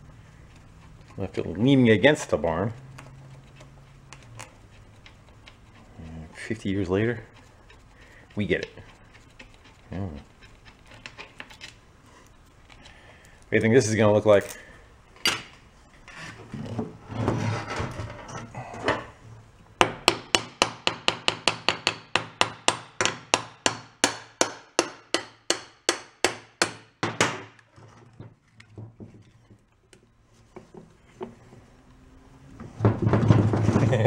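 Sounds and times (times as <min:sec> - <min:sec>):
engine parts scraping: 0:00.0 - 0:13.0.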